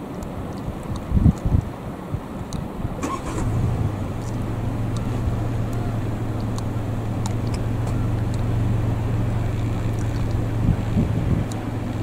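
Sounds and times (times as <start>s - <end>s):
motor engine humming: 3.0s - 12.0s.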